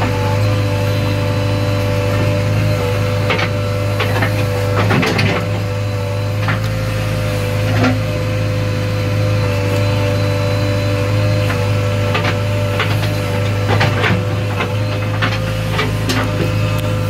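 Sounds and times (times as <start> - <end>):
diesel engine running: 0.0 - 17.0
backhoe arm knocks and clunks: 3.2 - 5.6.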